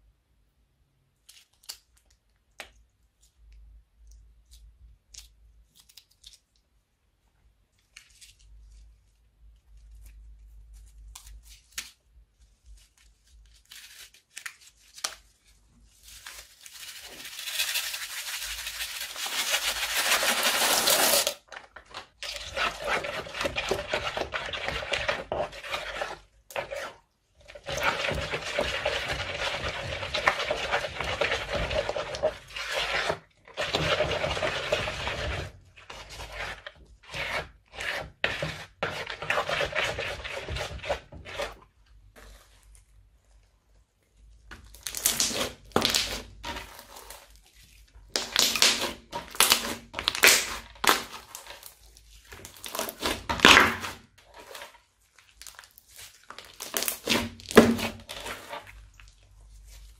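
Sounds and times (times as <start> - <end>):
spatula scraping gritty slime: 15.7 - 43.4, 44.6 - 59.9.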